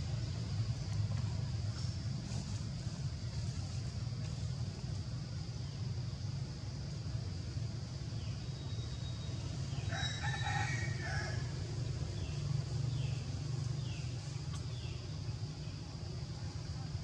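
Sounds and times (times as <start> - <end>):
rooster crowing: 9.8 - 11.6.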